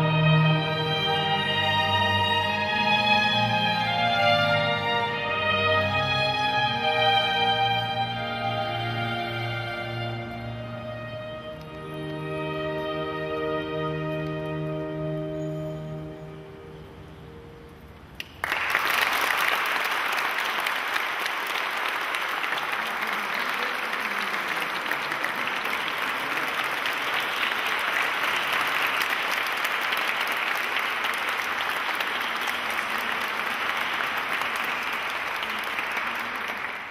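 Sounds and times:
audience applause: 18.2 - 36.9.

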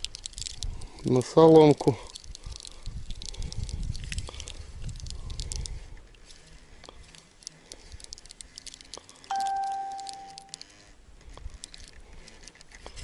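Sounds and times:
clear ringing ding: 9.3 - 10.6.

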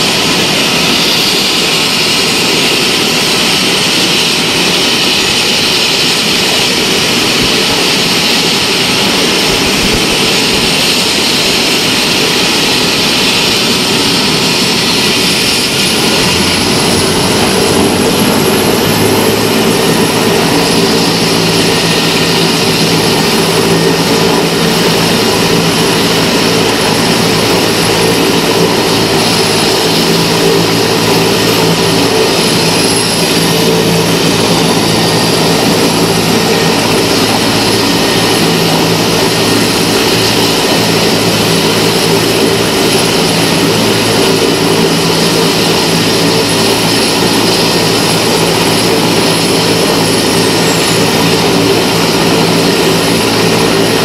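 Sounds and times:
helicopter rotor noise: 0.0 - 54.0
helicopter turbine whine: 0.0 - 54.0.

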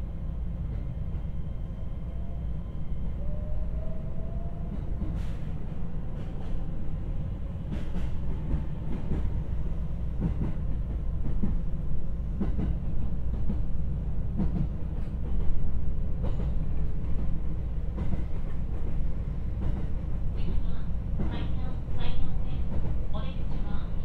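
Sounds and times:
train car rumbling: 0.0 - 24.0.

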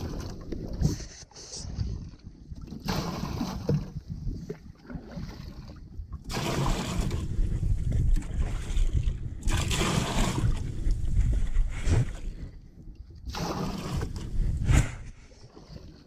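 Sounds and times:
water pouring and splashing: 0.0 - 1.2, 2.6 - 12.2, 13.3 - 16.0.

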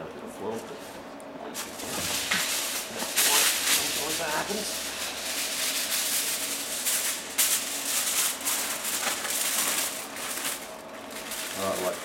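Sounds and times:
aluminium foil crinkling: 1.6 - 12.0.

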